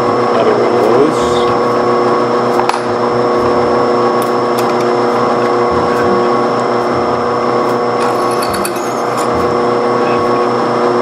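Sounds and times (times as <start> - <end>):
bench machine motor running: 0.0 - 11.0
file cutting steel: 7.6 - 9.6.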